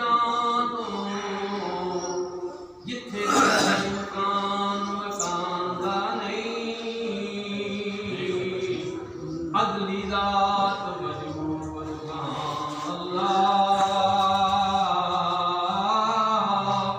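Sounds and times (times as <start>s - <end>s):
man chanting: 2.8s - 16.9s.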